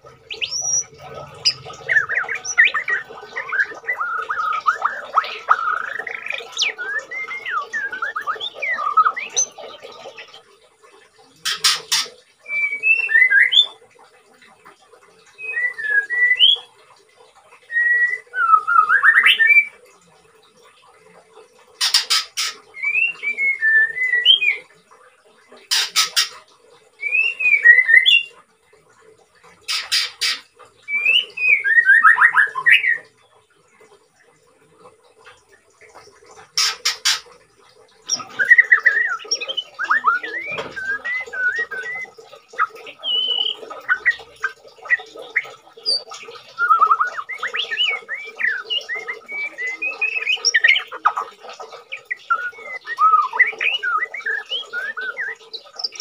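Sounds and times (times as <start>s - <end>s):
bird singing whistled notes: 0.3s - 9.6s, 12.5s - 13.8s, 15.4s - 16.7s, 22.8s - 24.6s, 27.0s - 28.3s, 38.1s - 50.9s, 51.9s - 56.0s.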